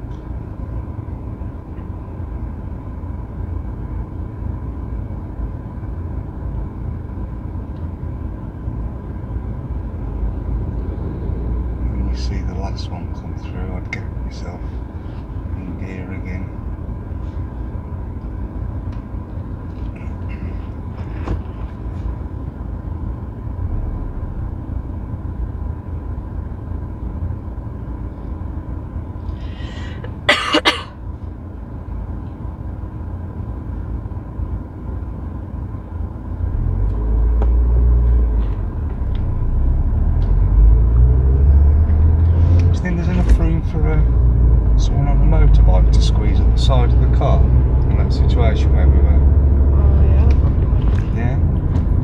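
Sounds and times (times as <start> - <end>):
car engine idling: 0.0 - 41.1
person coughing: 30.1 - 31.0.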